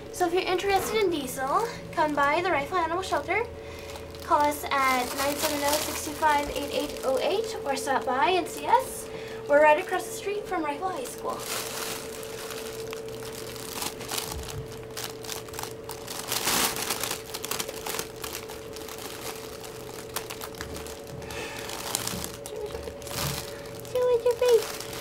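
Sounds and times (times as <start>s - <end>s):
faint hum: 0.0s - 25.0s
fabric tunnel rustling: 3.9s - 8.9s, 10.9s - 25.0s.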